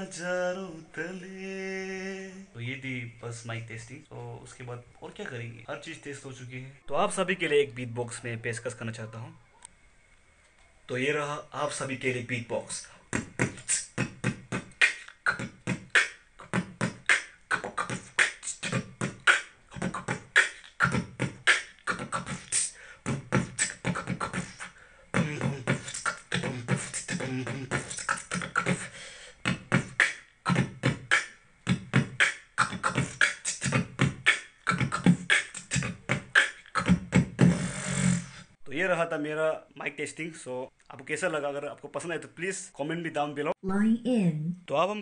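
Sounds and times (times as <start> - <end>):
beatboxing through a speaker: 12.6 - 38.6.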